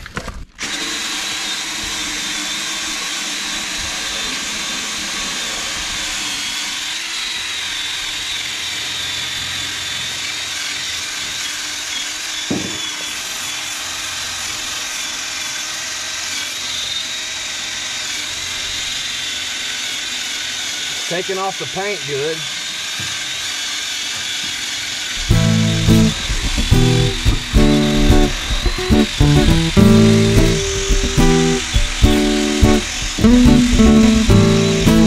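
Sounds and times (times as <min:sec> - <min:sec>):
drill motor whine: 0:00.6 - 0:35.0
wire brush scouring steel: 0:25.2 - 0:35.0.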